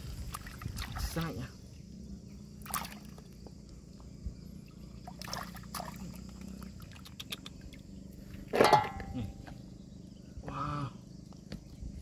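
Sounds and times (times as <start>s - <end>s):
water splashing and dripping: 0.0s - 1.4s, 2.6s - 3.3s, 5.0s - 7.7s.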